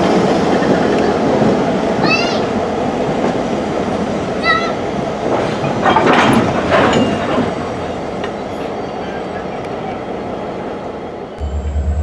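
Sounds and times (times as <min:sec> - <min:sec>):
train wheels rumbling on rails: 0:00.0 - 0:12.0
wheels clattering: 0:05.2 - 0:08.7.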